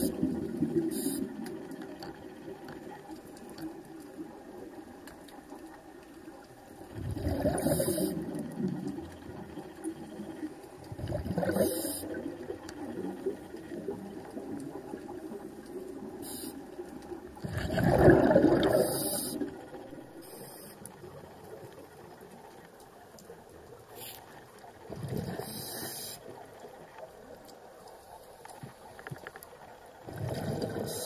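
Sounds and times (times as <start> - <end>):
regulator breathing bubbles: 7.0 - 8.7, 10.9 - 12.4, 17.4 - 19.6
low wash of water: 17.4 - 20.3.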